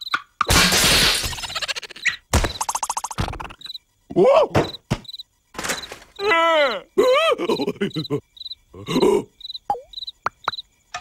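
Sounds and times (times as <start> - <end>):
loud cartoon crash: 0.5 - 1.6
squeaky character vocalization: 1.2 - 3.7.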